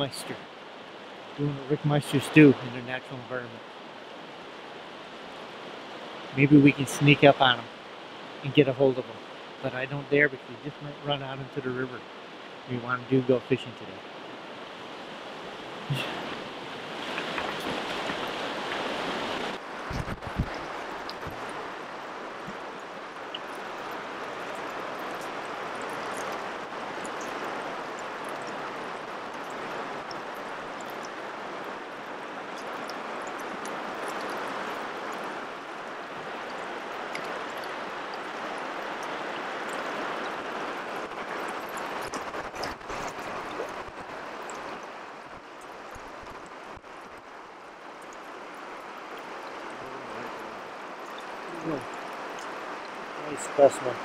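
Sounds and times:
river current rushing: 0:00.0 - 0:54.0
water splashes and drips: 0:14.0 - 0:54.0.

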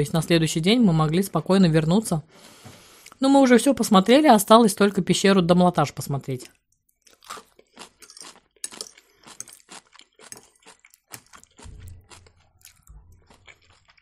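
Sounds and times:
chewing crunchy sauerkraut: 0:06.9 - 0:14.0.

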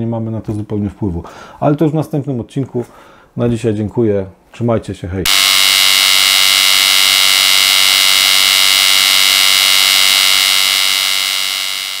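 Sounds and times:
loud hissing electrical buzz: 0:05.3 - 0:12.0.

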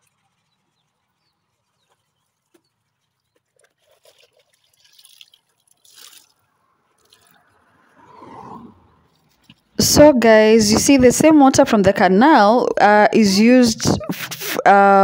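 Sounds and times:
water dripping and splashing: 0:00.0 - 0:07.9.

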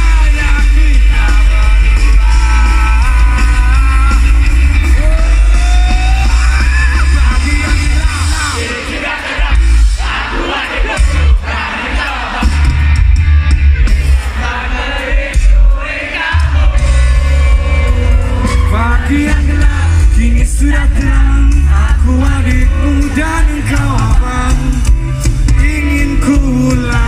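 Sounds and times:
person singing: 0:00.0 - 0:08.8, 0:15.6 - 0:27.0
live rock band playing: 0:00.0 - 0:27.0.

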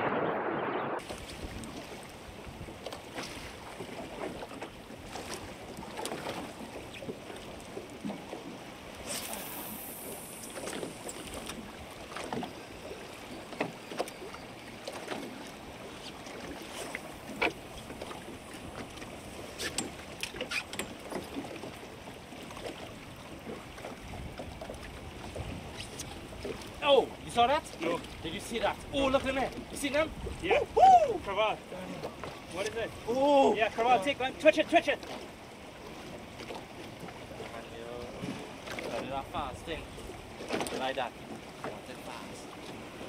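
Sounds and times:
wind on microphone: 0:00.0 - 0:02.8, 0:29.9 - 0:31.3
water slapping boat hull: 0:00.9 - 0:43.0.

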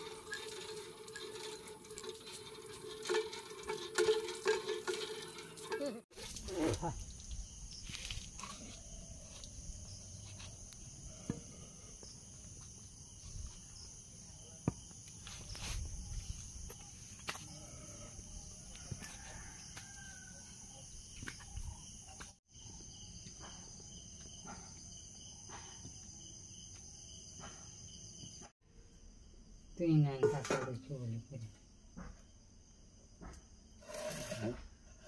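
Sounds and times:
high-pitched insect chorus: 0:05.8 - 0:30.2.

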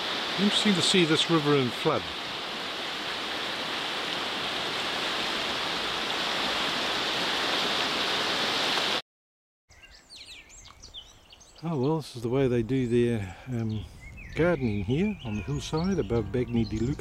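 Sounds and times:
river rushing over rapids: 0:00.0 - 0:09.0
faint bird chirps: 0:09.7 - 0:12.1, 0:12.7 - 0:17.0.

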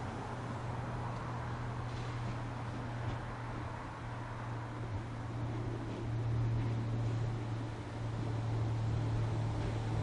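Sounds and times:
electric train low hum: 0:00.0 - 0:10.0
train rolling hiss: 0:01.7 - 0:03.1.

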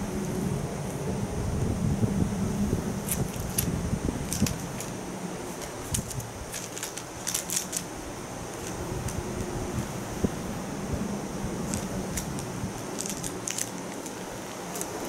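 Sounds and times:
plastic toy crinkling and crackling: 0:03.0 - 0:09.5, 0:11.6 - 0:15.0.

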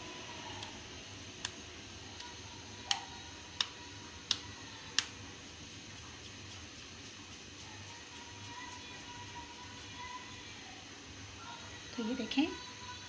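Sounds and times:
dough pressed wet clicks: 0:02.2 - 0:05.2.

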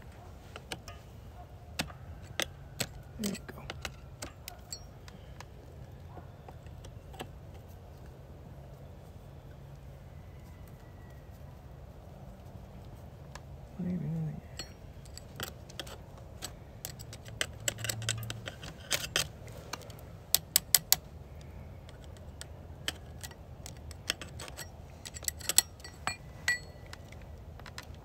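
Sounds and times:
metal clink ringing: 0:03.2 - 0:05.0, 0:14.4 - 0:15.5, 0:24.1 - 0:27.0
screwdriver clicking and scraping metal: 0:14.4 - 0:21.1, 0:21.8 - 0:28.0.

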